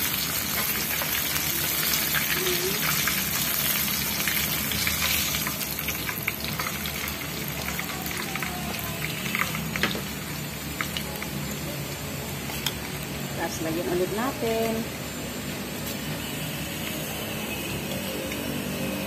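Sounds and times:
oil crackles and pops: 0.0 - 13.2
oil sizzling with chicken frying: 0.0 - 19.0.

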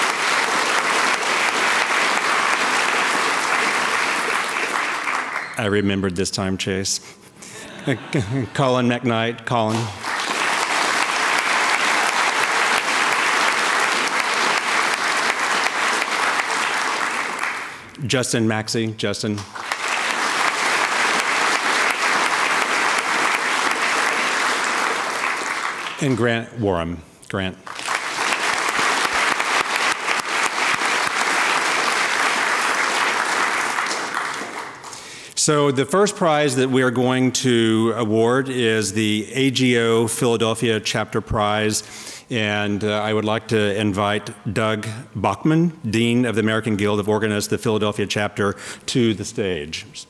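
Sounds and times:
audience applauding: 0.0 - 6.2, 9.6 - 17.9, 19.4 - 26.3, 27.6 - 35.2.

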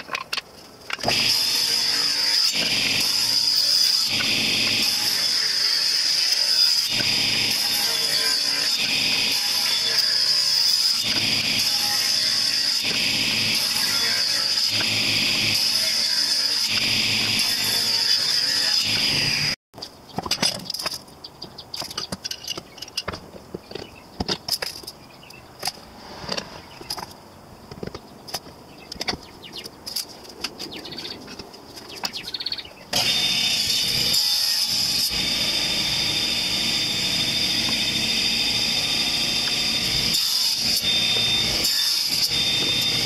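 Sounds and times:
table saw running with whine: 1.0 - 19.6, 32.9 - 43.0.

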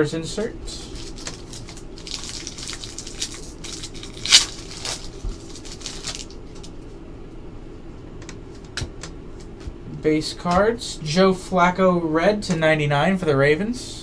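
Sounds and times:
cards shuffled in hands: 0.8 - 6.8
foil wrappers crinkling and tearing: 0.8 - 6.8.

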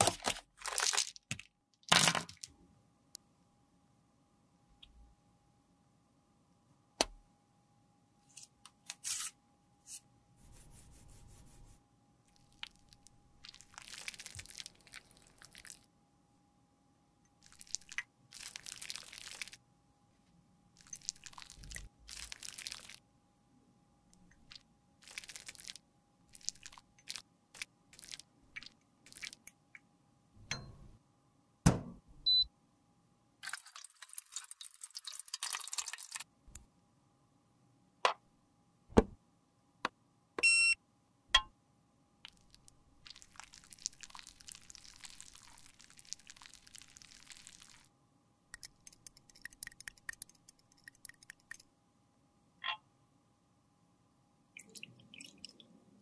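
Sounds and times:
short electronic beep: 40.4 - 40.8.

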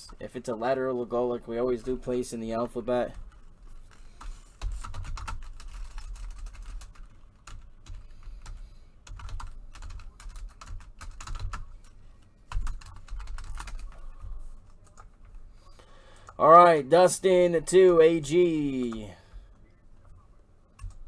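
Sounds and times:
computer keyboard typing: 4.2 - 15.4, 18.7 - 21.0.

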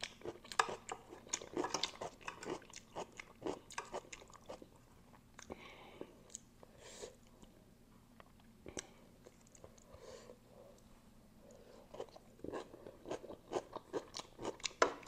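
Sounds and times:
person chewing noodles: 0.0 - 6.5, 11.5 - 15.0.

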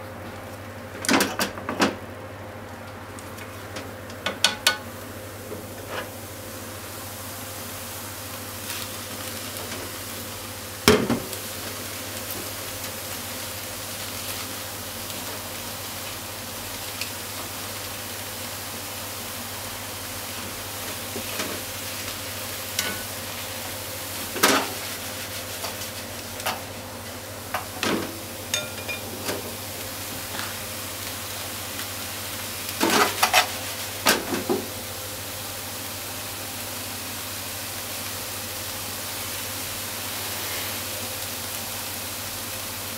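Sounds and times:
utensils knocking against pan: 4.3 - 4.8, 27.6 - 29.4
tofu and leek sizzling in pan: 4.8 - 42.9.

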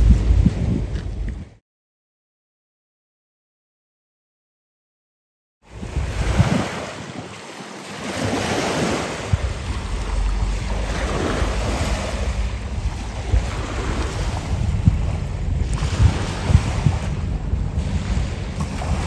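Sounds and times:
wind buffeting microphone: 0.0 - 1.6, 5.7 - 19.0
small waves washing on shore: 5.7 - 19.0.

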